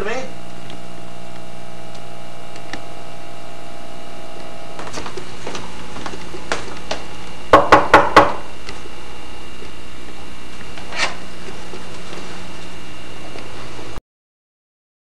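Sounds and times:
steady background hum: 0.0s - 14.0s
light footfalls: 4.8s - 7.3s
loud knocks on a door: 7.5s - 8.5s.

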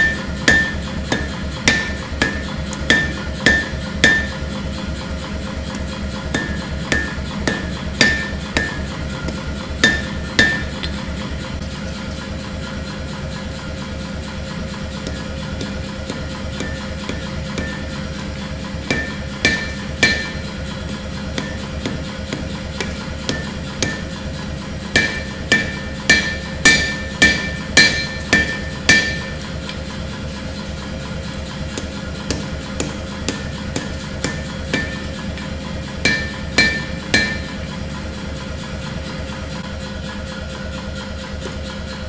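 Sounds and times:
hammer ringing on anvil: 0.0s - 4.8s, 5.7s - 10.8s, 15.0s - 29.6s, 31.7s - 37.8s
steady hum: 0.0s - 39.6s.

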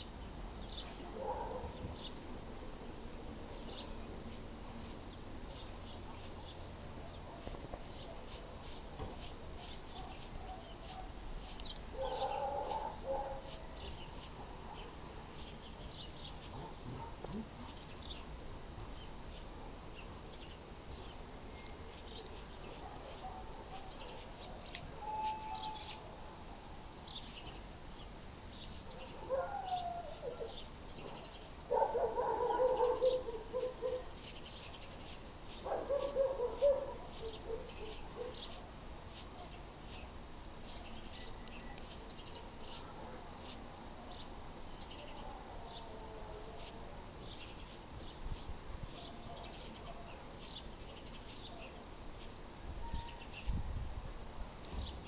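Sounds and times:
butterfly wing clicks: 3.5s - 6.6s, 7.4s - 18.3s, 19.0s - 26.2s, 27.1s - 29.2s, 30.1s - 43.7s, 46.6s - 52.6s, 54.6s - 55.0s
animal calls: 25.0s - 26.0s.

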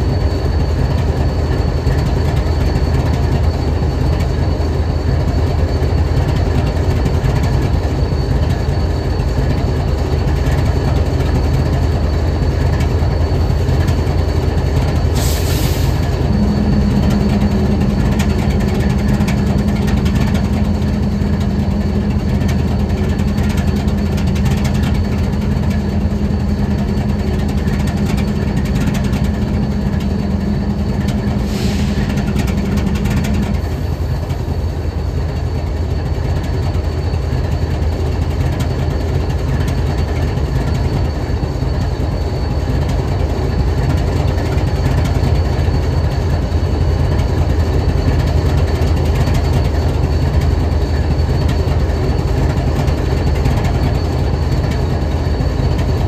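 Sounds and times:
locomotive engine idling: 0.0s - 56.0s
higher-pitched hum: 11.1s - 35.5s
air hissing: 15.1s - 34.6s.

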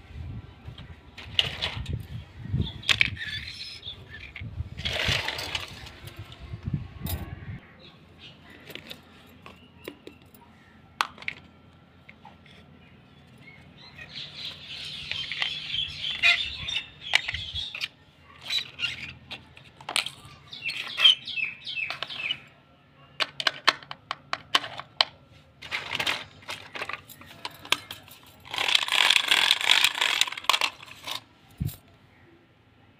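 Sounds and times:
plastic toy pieces clacking: 2.8s - 6.2s, 11.0s - 12.6s, 14.6s - 21.2s, 23.2s - 31.8s.

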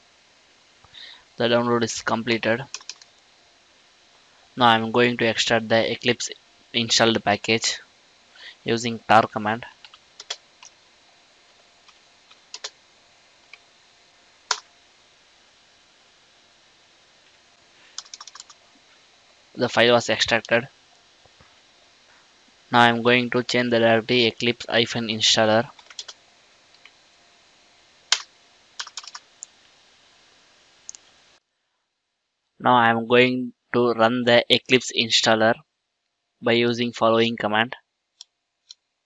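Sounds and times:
faint steady hiss: 0.0s - 39.0s
keyboard keys clicking: 2.7s - 3.1s, 9.8s - 10.7s, 12.5s - 12.8s, 18.0s - 18.6s, 25.7s - 26.2s, 28.1s - 29.2s.

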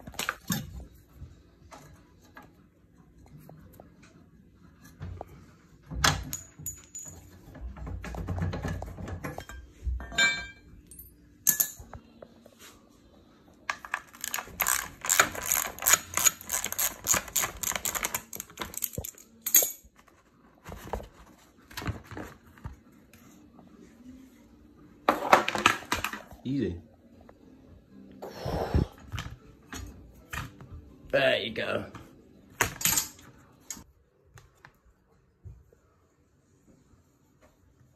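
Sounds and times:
metallic clinks and taps: 6.2s - 7.4s, 17.8s - 19.8s.

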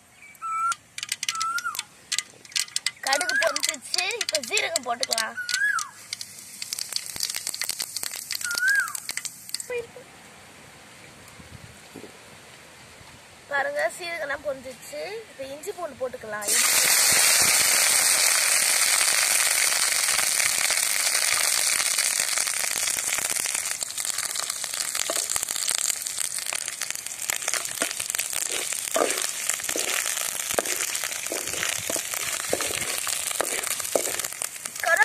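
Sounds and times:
oil crackling and popping: 0.7s - 9.8s, 16.4s - 35.0s
garlic sizzling in hot oil: 0.8s - 9.8s, 16.4s - 35.0s.

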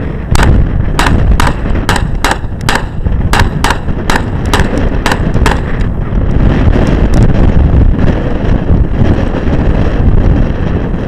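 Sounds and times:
wind buffeting microphone: 0.0s - 11.0s
rapid semi-automatic gunfire: 0.3s - 5.8s.

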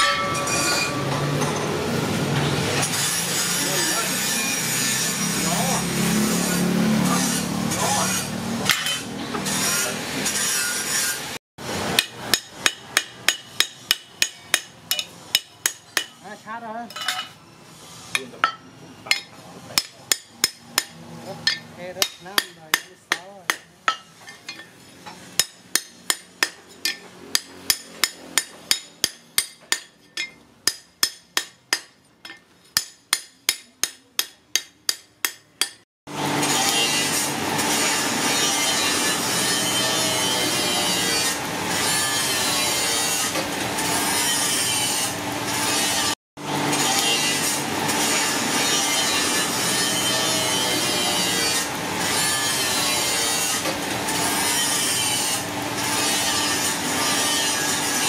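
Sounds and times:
hammer striking metal on anvil: 0.0s - 1.8s, 8.7s - 9.1s, 11.9s - 16.2s, 18.1s - 35.8s.

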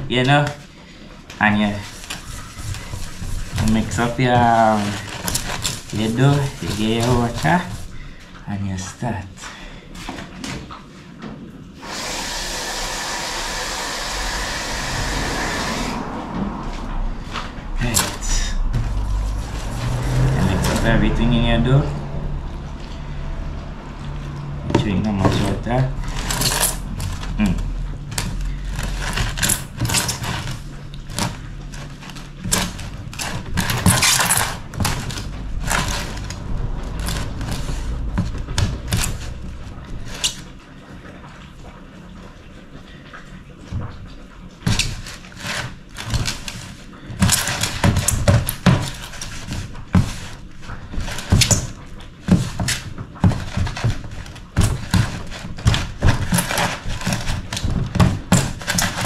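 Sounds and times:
hands kneading wet dough: 0.0s - 11.8s, 16.0s - 59.0s.

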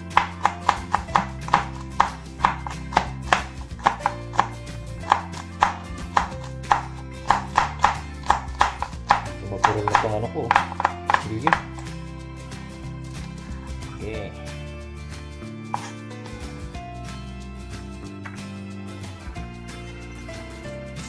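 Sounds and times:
knife chopping on cutting board: 0.0s - 11.9s
background music: 0.0s - 21.0s.

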